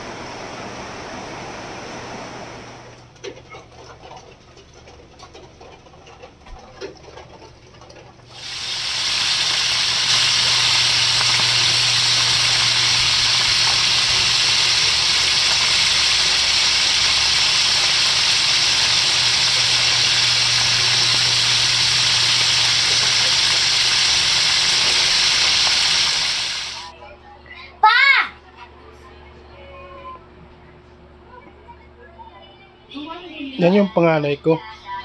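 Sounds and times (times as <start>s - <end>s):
fish sizzling in hot oil: 8.3s - 26.9s.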